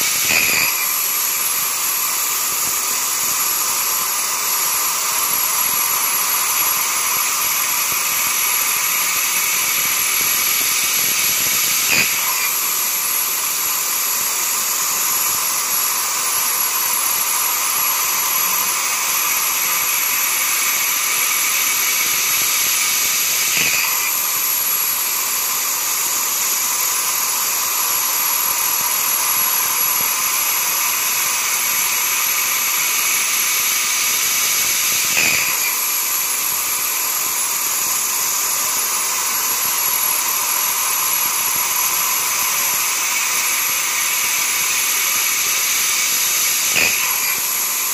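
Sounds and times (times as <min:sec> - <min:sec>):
milling machine cutting whine: 0:00.0 - 0:47.9.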